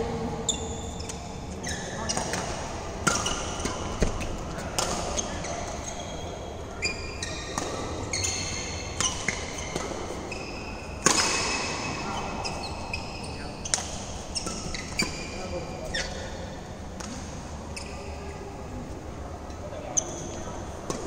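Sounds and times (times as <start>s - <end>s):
shoes squeaking on court: 0.5s - 2.6s, 3.2s - 16.4s, 17.7s - 18.3s
rackets hitting shuttlecock: 2.0s - 5.8s, 7.3s - 12.1s, 13.6s - 15.2s.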